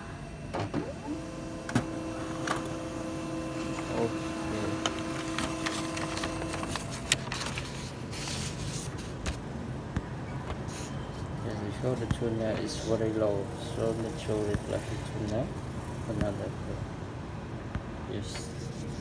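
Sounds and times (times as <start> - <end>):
laser printer motor hum: 0.0 - 7.1
paper rustling: 4.6 - 9.5.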